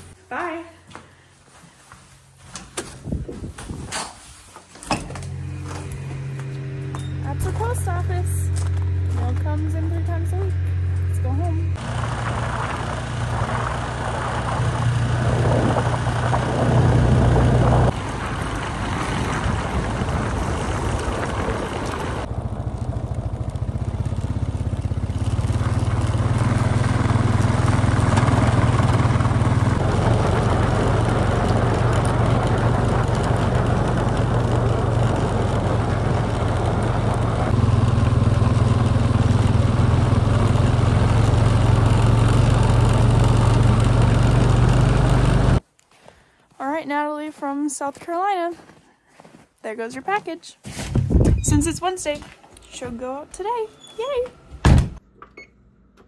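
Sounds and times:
quad bike engine running: 5.3s - 45.6s.

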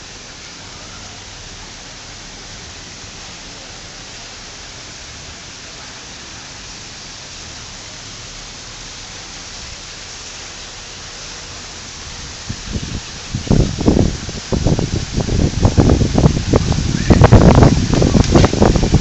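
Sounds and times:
outdoor background hiss: 0.0s - 19.0s.

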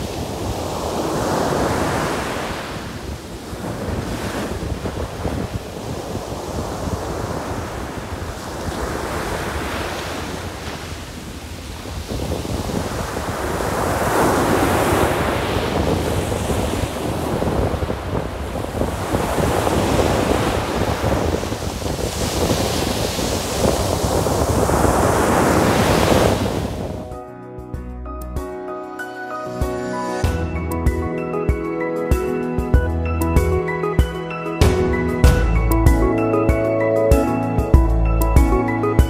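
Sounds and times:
sea waves breaking: 0.0s - 27.1s
wind buffeting microphone: 0.0s - 27.1s.

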